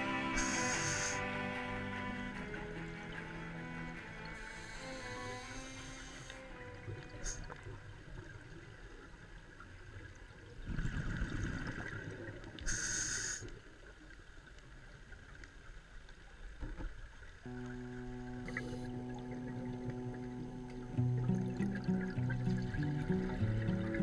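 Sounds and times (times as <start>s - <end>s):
regulator inhale hiss: 0.3s - 1.4s, 4.4s - 6.5s, 7.2s - 7.6s, 12.6s - 13.6s, 18.4s - 19.0s
underwater exhaled bubbles rumbling: 10.5s - 12.6s, 17.5s - 24.0s.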